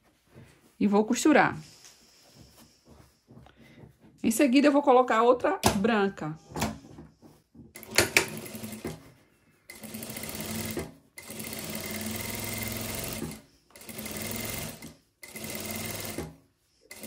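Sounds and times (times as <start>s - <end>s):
sewing machine stitching: 7.7s - 9.0s, 9.7s - 17.0s.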